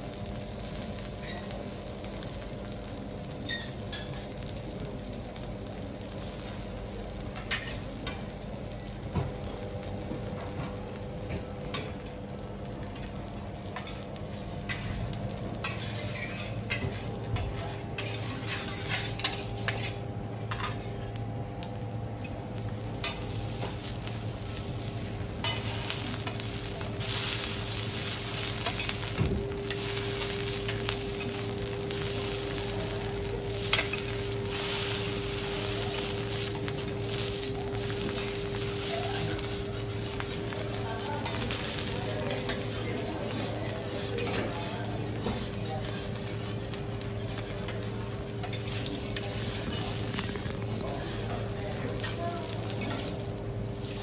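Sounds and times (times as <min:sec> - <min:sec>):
food sizzling on griddle: 0:00.0 - 0:54.0
metal spatulas clicking and scraping: 0:15.6 - 0:17.0.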